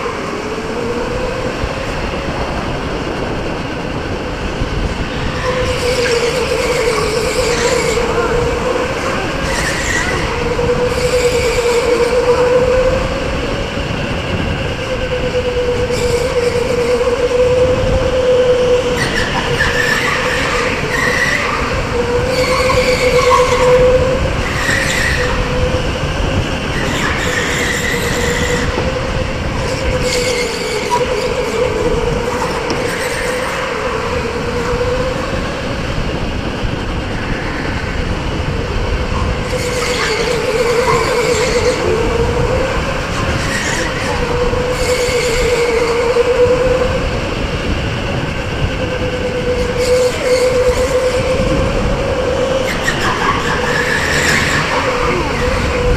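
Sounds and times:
wind rush on microphone: 0.0s - 55.9s
tyre squeals: 14.8s - 25.9s, 39.2s - 47.1s, 48.8s - 55.9s.

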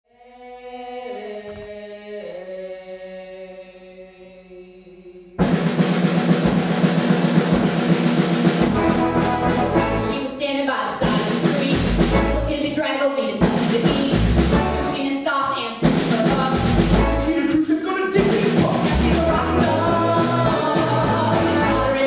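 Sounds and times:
loud dense music with drums: 5.4s - 10.3s, 11.0s - 12.6s, 13.4s - 15.0s, 15.8s - 17.5s, 18.2s - 22.0s.

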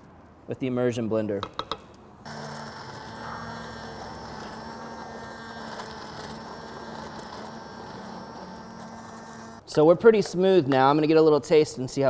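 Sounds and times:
immersion blender motor running: 2.3s - 9.6s.

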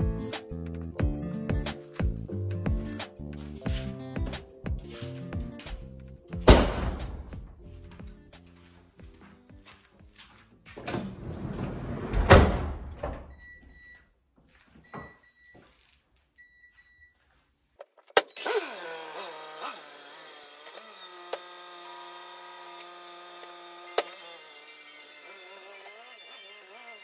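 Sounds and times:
background music: 0.0s - 11.9s
door thud: 6.4s - 7.5s, 11.9s - 13.3s
sliding door rolling open: 10.8s - 13.4s.

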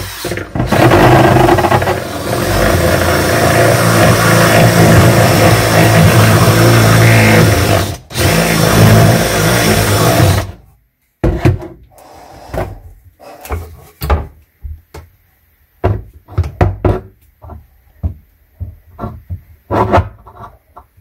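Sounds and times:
cordless drill running: 0.0s - 10.5s.

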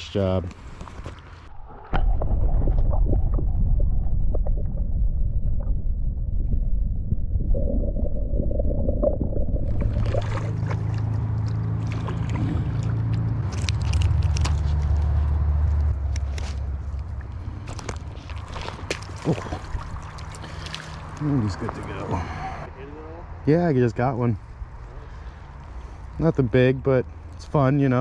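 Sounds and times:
muffled underwater water rushing: 1.4s - 13.1s, 17.1s - 21.8s.

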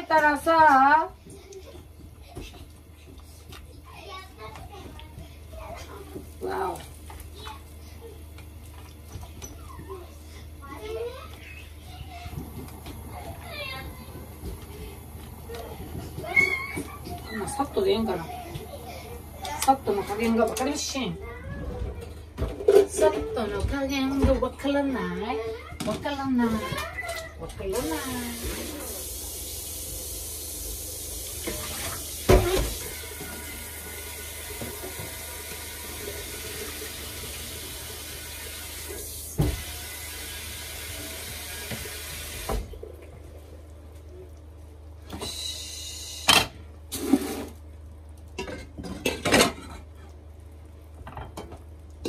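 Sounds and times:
kitchenware clattering: 22.0s - 24.6s, 48.4s - 50.0s, 51.0s - 51.6s
tap running into sink: 31.4s - 42.7s.

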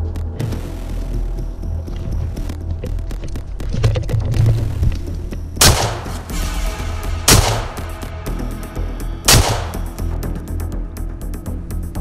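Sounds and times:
gunshots ringing out: 5.6s - 6.4s, 7.3s - 8.0s, 9.3s - 10.0s.

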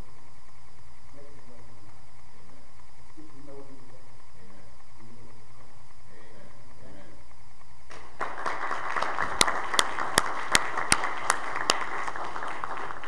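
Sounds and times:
congregation applauding: 7.9s - 13.0s
sharp nearby hand claps: 7.9s - 13.0s.

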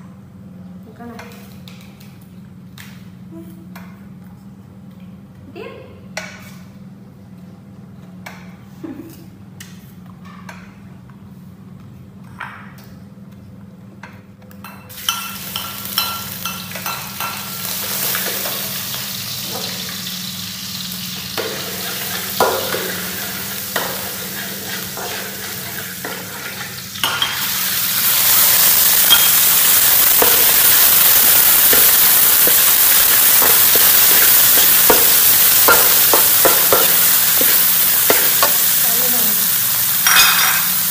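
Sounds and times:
food frying in oil: 14.9s - 40.9s.

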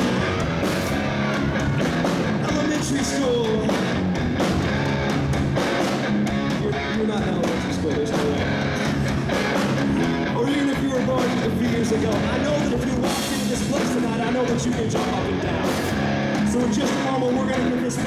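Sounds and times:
drum kit: 0.0s - 18.0s
electric guitars: 0.0s - 18.0s
lead vocal singing: 2.2s - 4.0s, 10.0s - 18.0s.

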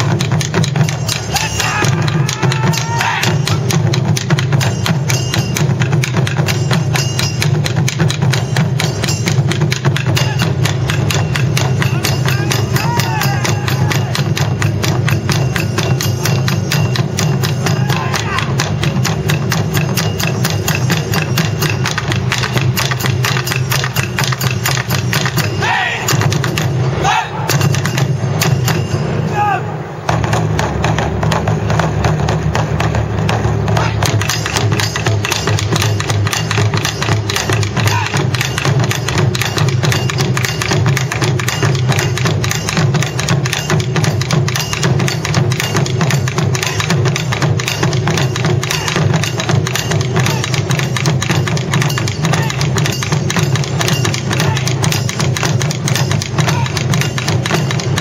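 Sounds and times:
hand cymbals clashing: 0.0s - 58.0s
taiko drums beating: 0.0s - 58.0s
performers shouting: 1.1s - 3.7s, 10.1s - 10.7s, 11.7s - 14.7s, 17.4s - 18.9s, 25.4s - 27.6s, 29.2s - 30.0s, 33.7s - 34.3s, 37.4s - 38.6s, 46.5s - 47.2s, 48.6s - 49.3s, 50.0s - 50.8s, 52.2s - 52.9s, 54.2s - 55.0s, 56.2s - 57.0s.

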